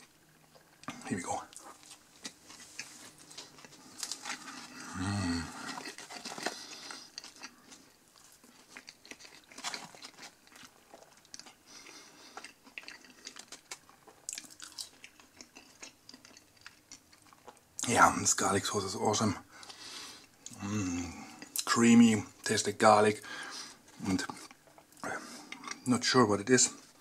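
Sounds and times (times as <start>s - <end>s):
person chewing food: 0.0s - 17.9s, 19.5s - 21.7s, 23.3s - 25.9s
low voice hum: 4.7s - 5.7s, 20.6s - 21.3s.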